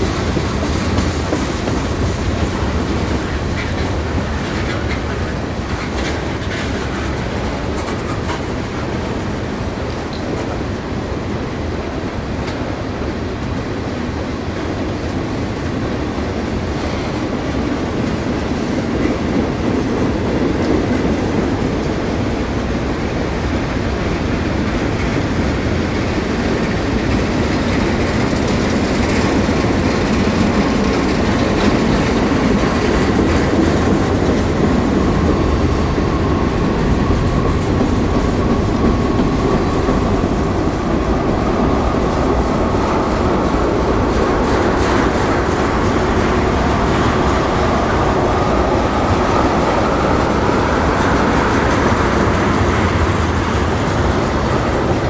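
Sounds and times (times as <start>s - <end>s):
wheels clicking over rail joints: 0.0s - 9.2s
train wheels rumbling on rails: 0.0s - 55.0s.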